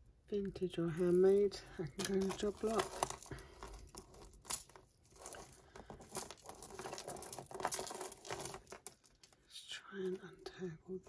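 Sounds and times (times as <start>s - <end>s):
jewellery chains and beads clinking: 0.7s - 9.4s.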